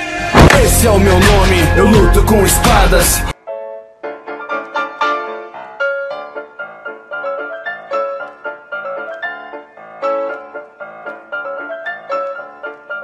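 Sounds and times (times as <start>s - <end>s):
light piano melody: 3.3s - 13.0s.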